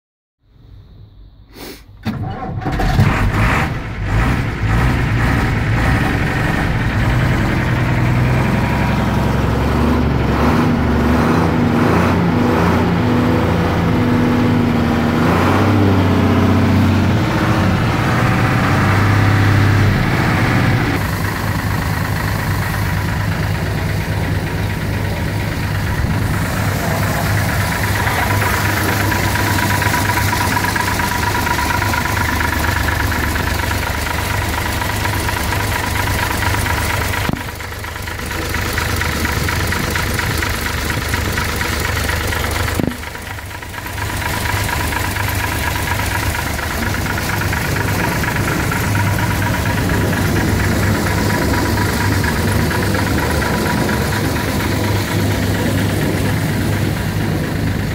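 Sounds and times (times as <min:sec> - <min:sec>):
diesel truck engine idling: 0:03.3 - 0:57.9.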